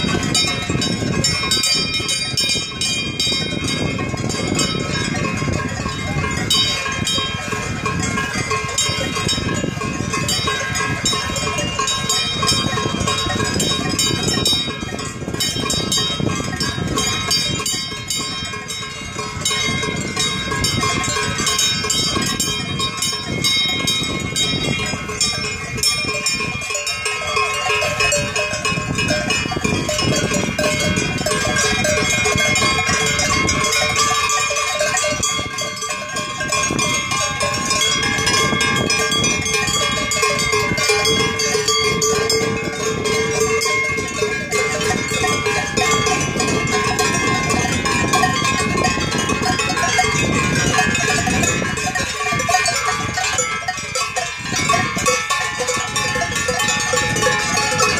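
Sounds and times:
cowbells ringing: 0.0 - 57.9.

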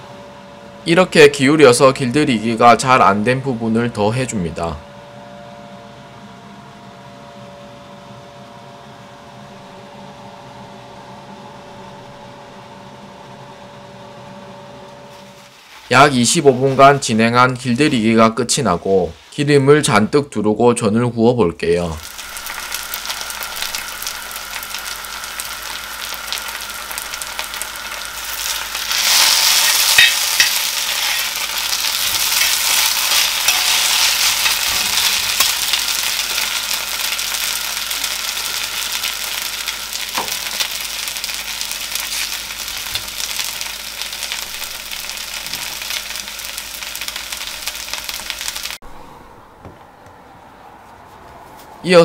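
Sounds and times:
pancake sizzling in oil: 22.0 - 48.8.

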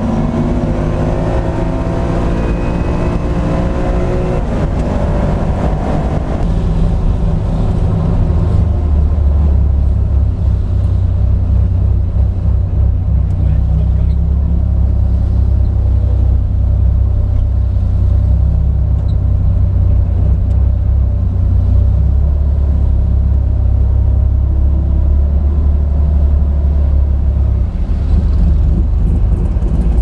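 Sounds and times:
car engine running at low revs: 0.0 - 30.0.

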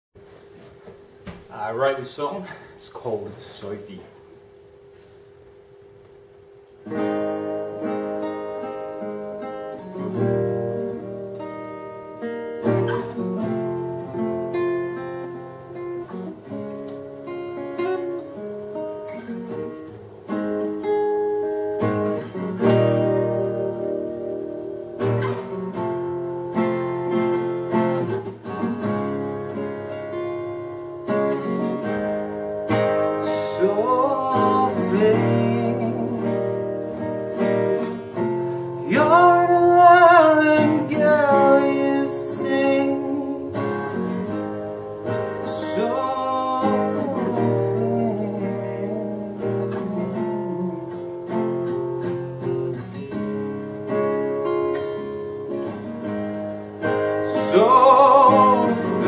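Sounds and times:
acoustic guitar playing chords: 0.2 - 59.0
man singing: 33.0 - 36.9, 38.8 - 44.3, 45.2 - 51.1, 57.2 - 59.0.

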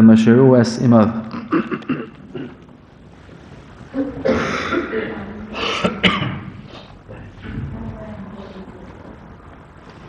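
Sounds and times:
person coughing and clearing throat: 1.3 - 2.7, 4.2 - 6.6
faint voices: 3.8 - 10.0.

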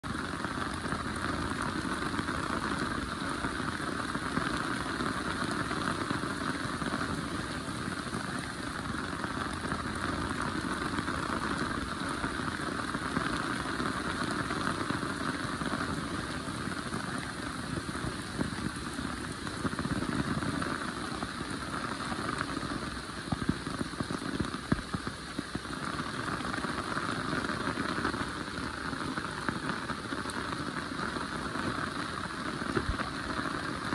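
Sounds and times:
heavy rain falling: 0.0 - 33.9.

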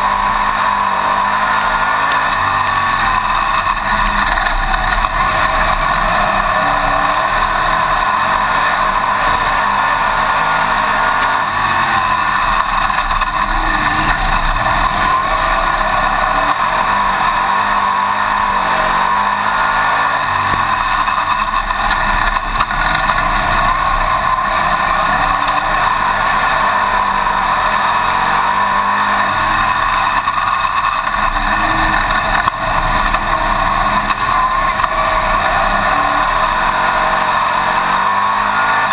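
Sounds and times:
racing engine revving: 0.0 - 38.9.

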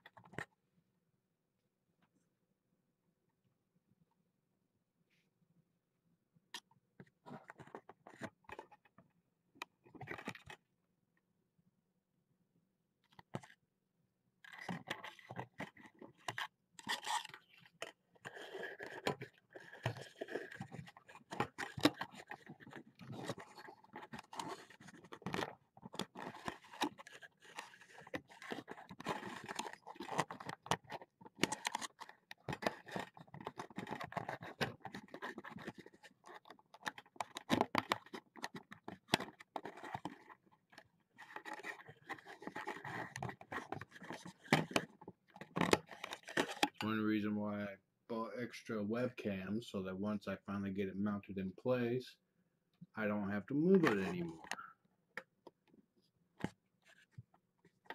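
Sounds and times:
handling noise on microphone: 53.0 - 54.6.

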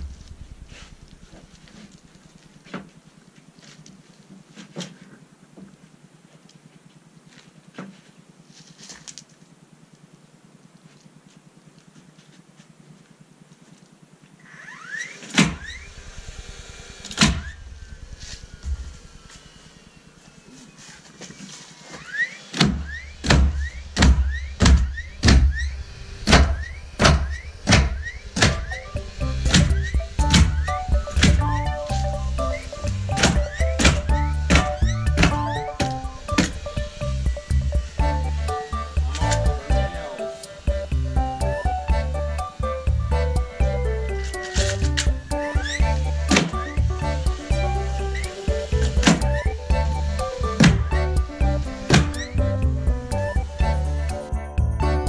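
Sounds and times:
faint steady hum: 0.0 - 55.0
motor spinning up whine: 14.4 - 55.0.

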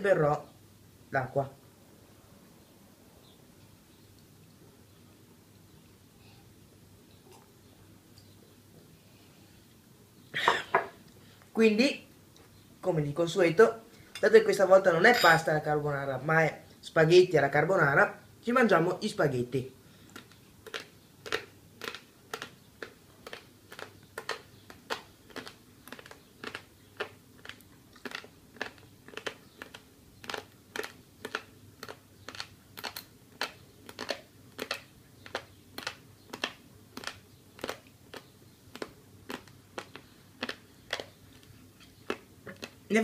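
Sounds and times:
dry spaghetti being chewed: 20.0 - 43.0.

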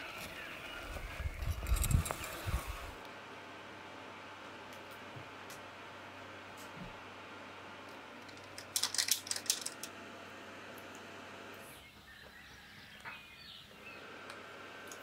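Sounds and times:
small plastic clicks and rattles: 8.2 - 9.9.

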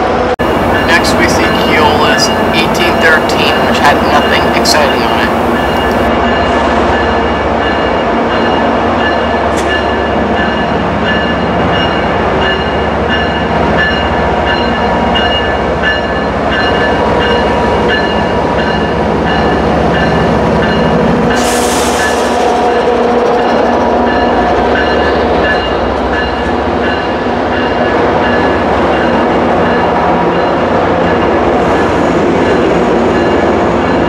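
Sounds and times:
bell ringing: 0.4 - 6.1
locomotive engine running: 0.4 - 6.1.

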